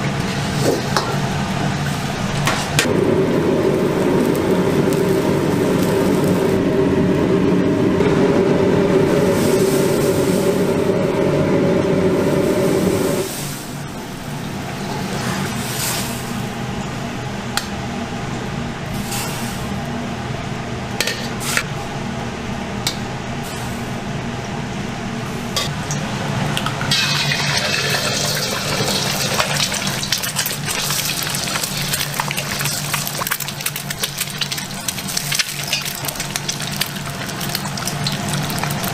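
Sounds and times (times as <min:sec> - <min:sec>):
gas burner roaring: 0:00.0 - 0:38.9
eggs sizzling in oil: 0:02.8 - 0:06.6, 0:26.9 - 0:38.9.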